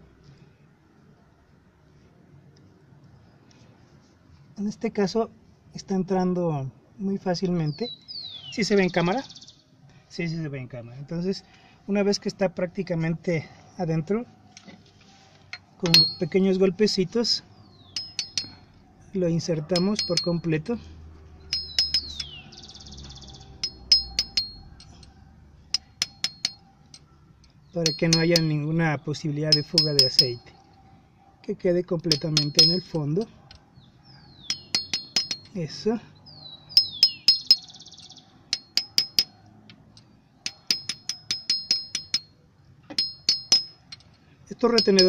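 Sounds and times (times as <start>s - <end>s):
light metal taps ringing: 15.5s - 16.5s, 17.9s - 18.6s, 19.6s - 20.7s, 21.5s - 22.4s, 23.6s - 25.1s, 25.7s - 28.8s, 29.5s - 30.5s, 32.0s - 33.6s, 34.4s - 35.6s, 36.7s - 37.7s, 38.5s - 45.0s.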